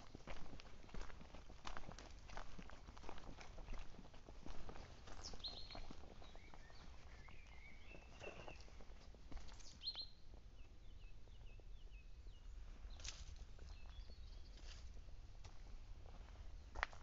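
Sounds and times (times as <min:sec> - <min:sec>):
footsteps on leafy dirt path: 0:00.0 - 0:10.0, 0:12.9 - 0:17.0
birds chirping and whistling: 0:05.1 - 0:08.8, 0:09.5 - 0:14.8.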